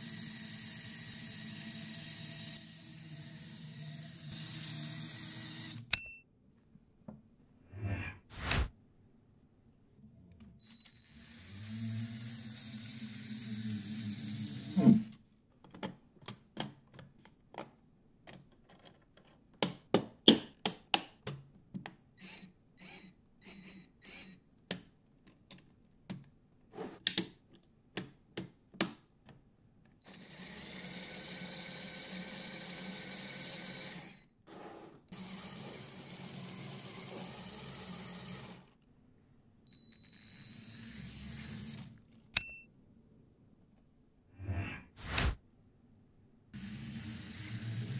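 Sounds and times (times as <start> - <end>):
electric motor and gears whirring: 0.0 - 5.9, 10.6 - 15.1, 46.6 - 47.9.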